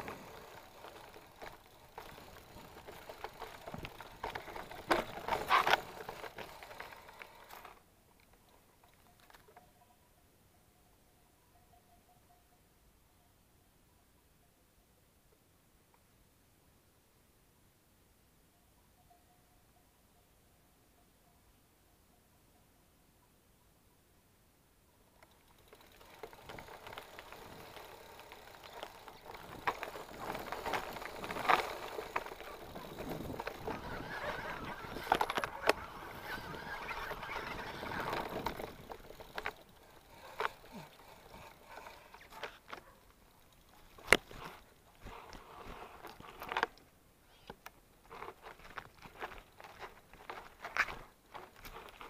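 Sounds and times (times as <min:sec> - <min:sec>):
bike rattling clicks and knocks: 0:00.0 - 0:07.8, 0:25.2 - 0:46.8, 0:47.4 - 0:52.0
bike tyres rolling on dirt: 0:00.0 - 0:07.8, 0:25.2 - 0:52.0
grass brushing against bike: 0:00.0 - 0:07.8, 0:25.2 - 0:46.7, 0:47.3 - 0:52.0.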